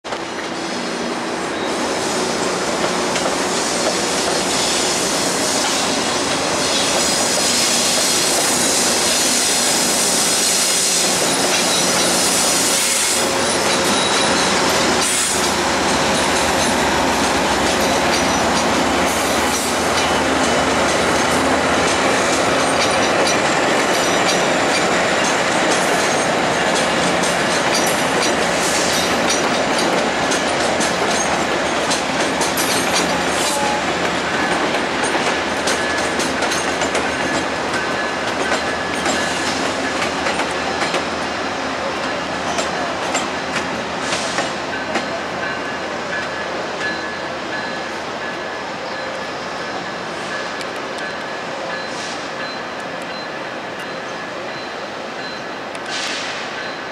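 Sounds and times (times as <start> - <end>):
diesel locomotive engine: 0.1 - 56.9
train wheel squeal: 0.4 - 56.9
wheels clicking over rail joints: 19.4 - 41.2.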